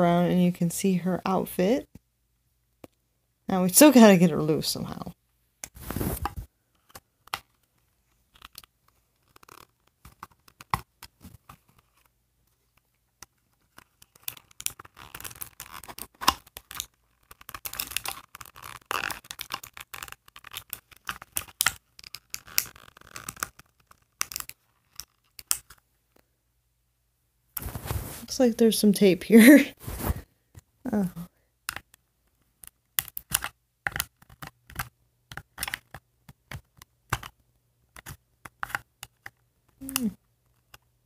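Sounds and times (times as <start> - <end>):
clicks and scrapes: 5.6 - 25.8, 37.9 - 40.9
plastic packaging rustling and tearing: 5.8 - 6.5, 13.4 - 25.8.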